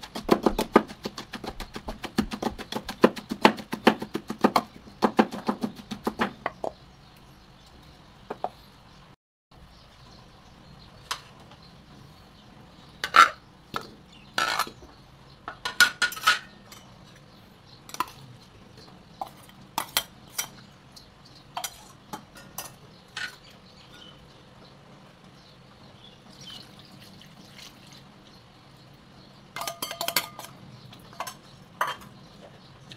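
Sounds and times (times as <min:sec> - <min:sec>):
metal kitchenware clattering: 0:13.0 - 0:14.8, 0:15.5 - 0:17.1, 0:21.5 - 0:24.2, 0:29.6 - 0:32.2.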